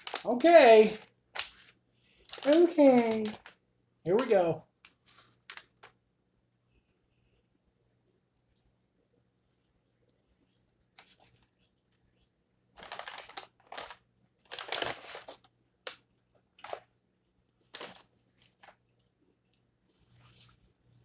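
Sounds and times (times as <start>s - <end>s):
paper bag rustling: 0.0s - 6.0s, 12.8s - 15.5s, 16.6s - 16.9s, 17.6s - 18.8s.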